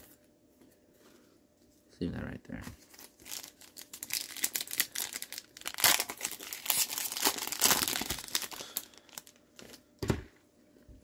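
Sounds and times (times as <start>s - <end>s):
plastic wrapper crinkling: 2.8s - 9.9s.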